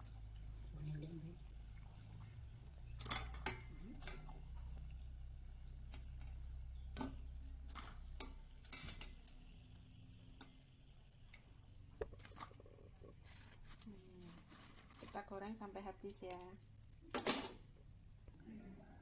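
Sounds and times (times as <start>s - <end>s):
low steady hum: 0.0s - 19.0s
metal tongs clicking on pot: 3.0s - 4.3s, 7.7s - 9.4s.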